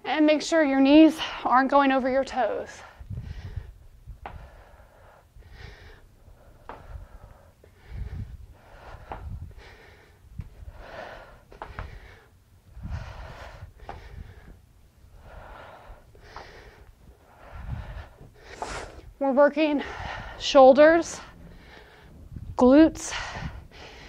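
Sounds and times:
woman breathing hard: 0:02.7 - 0:24.0
low thuds: 0:19.1 - 0:24.0.

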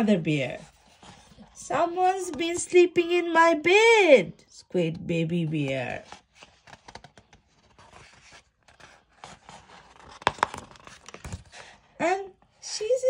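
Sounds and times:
paper page being turned: 0:05.7 - 0:11.8.

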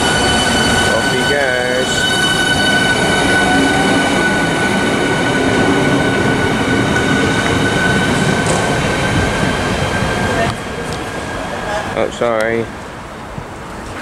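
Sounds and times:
high whine: 0:00.0 - 0:10.6
train rolling noise: 0:00.0 - 0:14.0.

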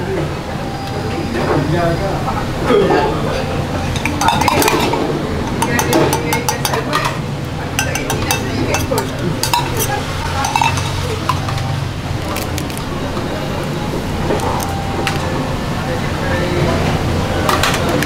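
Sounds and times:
utensil clinking on metal cup: 0:03.8 - 0:07.2, 0:07.8 - 0:12.8.

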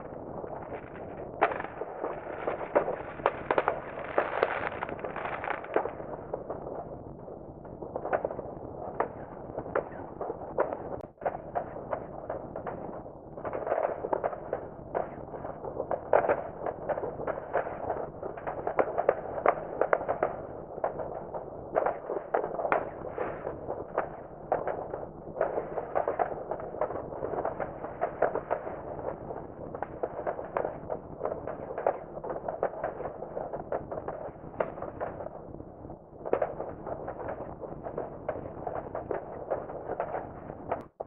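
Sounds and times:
distant fireworks bangs and crackles: 0:00.0 - 0:41.0.

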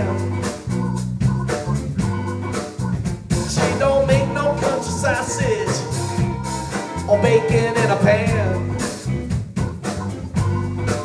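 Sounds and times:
live band playing: 0:00.0 - 0:11.0
gliding melody line: 0:03.5 - 0:08.9.

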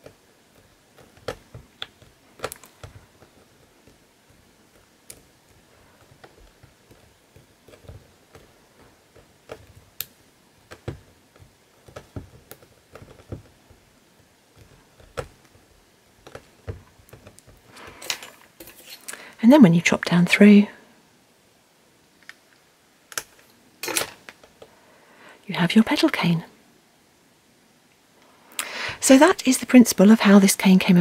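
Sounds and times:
clay tapping on hard board: 0:00.0 - 0:13.9, 0:16.2 - 0:17.7.

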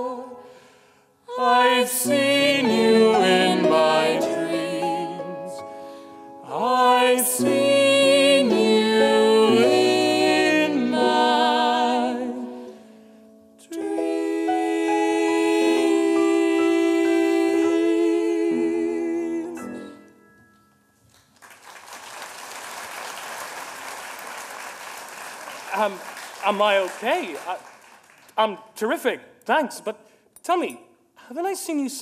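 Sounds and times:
show-tune singing with vibrato: 0:01.3 - 0:05.7, 0:06.4 - 0:12.6
audience applause: 0:21.4 - 0:28.3.

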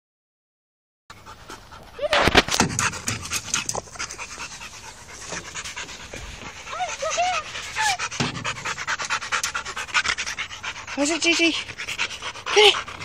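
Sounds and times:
dog panting: 0:01.1 - 0:13.0.

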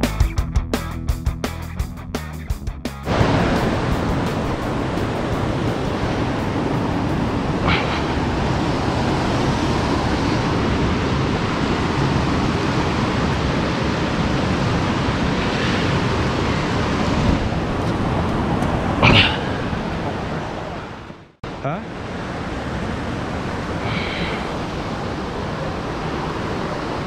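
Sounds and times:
river water flowing over rocks: 0:03.1 - 0:27.0.

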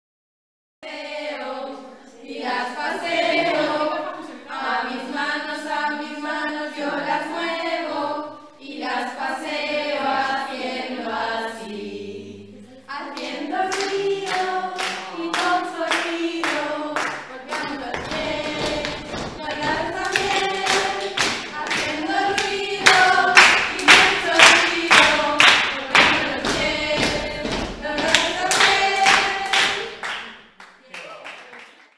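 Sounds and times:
women singing together: 0:00.8 - 0:30.3
rhythmic hand clapping: 0:12.9 - 0:31.9.

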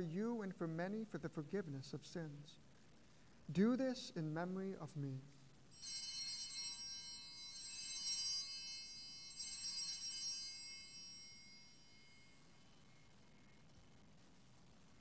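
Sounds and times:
small bells jingling: 0:05.7 - 0:13.2.

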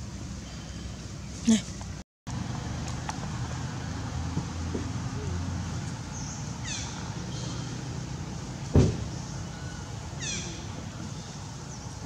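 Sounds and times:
sharp thump: 0:08.7 - 0:09.1.

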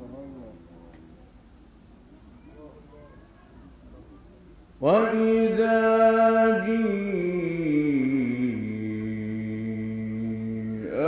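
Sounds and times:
man reciting melodically: 0:04.8 - 0:11.0.

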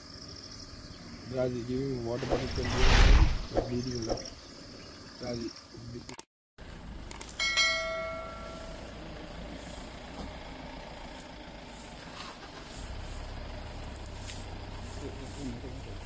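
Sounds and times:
bell-like chime: 0:07.2 - 0:08.9.

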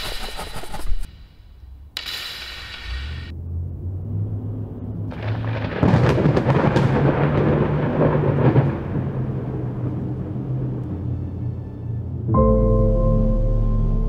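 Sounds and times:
thunder rumbling: 0:03.8 - 0:12.3
steady low drone: 0:06.6 - 0:14.0.

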